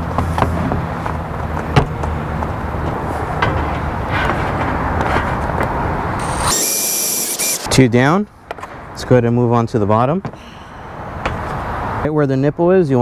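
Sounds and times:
drill boring through plastic: 0:06.2 - 0:07.7.

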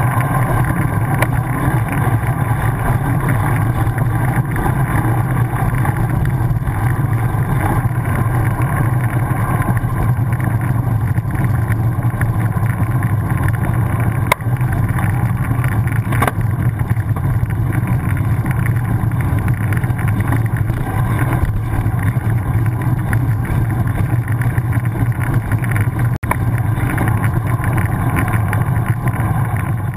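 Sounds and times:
bike tyres rumbling on road: 0:00.0 - 0:29.9
wheel knocking over bumps: 0:00.0 - 0:29.9.

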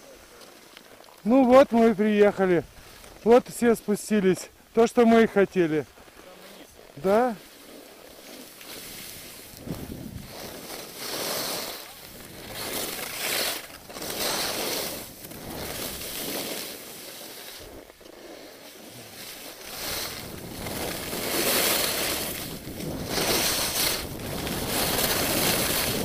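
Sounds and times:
skis scraping over snow: 0:00.0 - 0:26.0
wind buffeting microphone: 0:09.2 - 0:10.6, 0:19.6 - 0:26.0.

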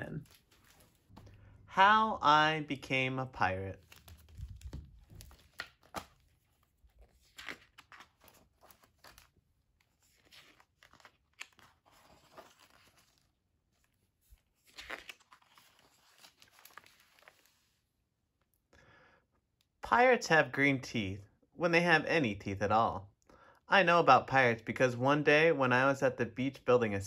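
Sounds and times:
book pages turning: 0:00.0 - 0:01.6, 0:03.4 - 0:17.9.

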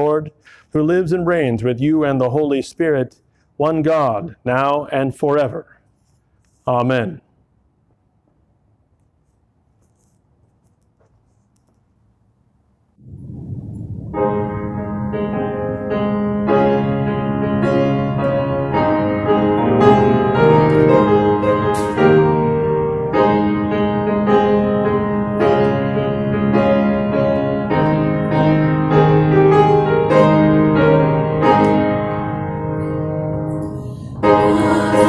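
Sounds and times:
piano playing chords: 0:14.0 - 0:35.0.

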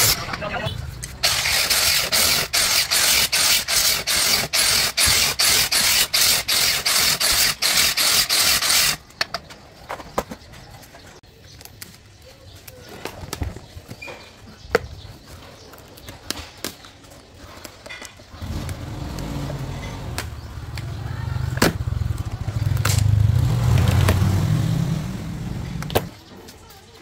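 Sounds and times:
low motor hum: 0:18.4 - 0:26.1.

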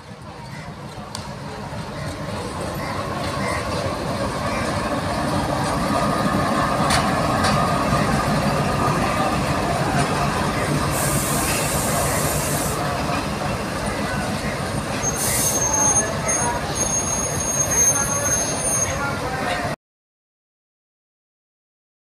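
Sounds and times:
diesel locomotive engine running: 0:00.0 - 0:19.7
hiss: 0:10.8 - 0:12.9.

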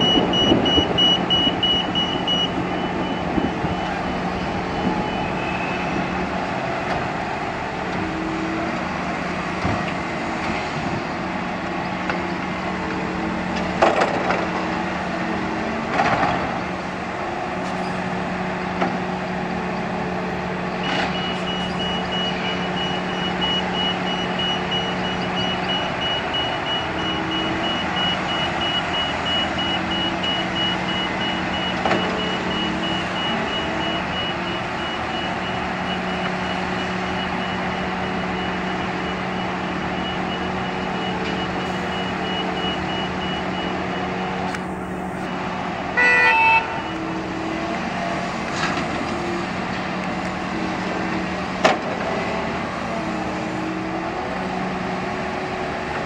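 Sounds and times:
reversing alarm beeping: 0:00.0 - 0:07.1, 0:20.8 - 0:47.7
diesel engines running: 0:00.0 - 0:56.0
short horn toot: 0:46.0 - 0:47.0.

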